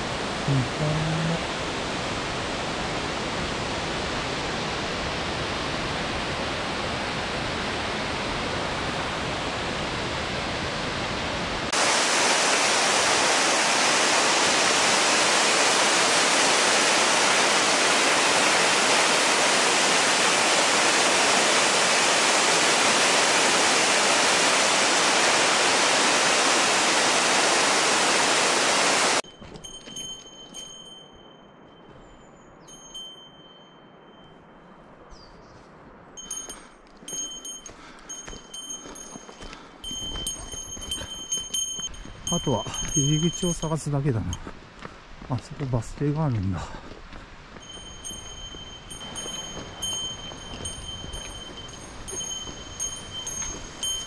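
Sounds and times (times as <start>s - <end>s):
waterfall rushing: 0.0s - 29.2s, 47.7s - 54.0s.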